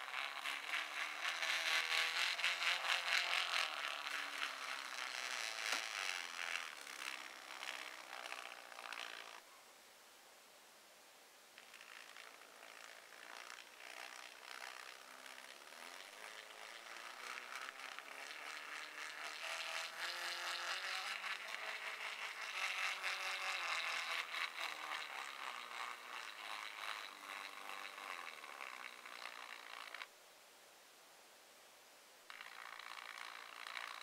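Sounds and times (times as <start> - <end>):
gears and wheels rattling: 0.0 - 9.4, 12.0 - 30.1
stepper motor whine: 0.0 - 9.4.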